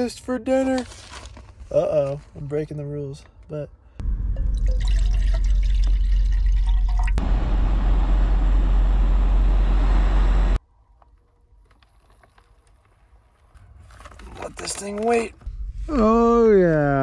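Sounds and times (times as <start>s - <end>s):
water pouring and gurgling: 4.4s - 7.2s.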